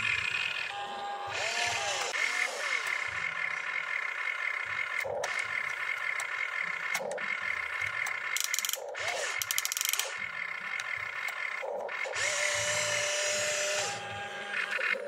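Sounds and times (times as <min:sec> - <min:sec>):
toy excavator motors whirring: 0:00.0 - 0:15.0
rattling gear clicks: 0:04.9 - 0:12.0.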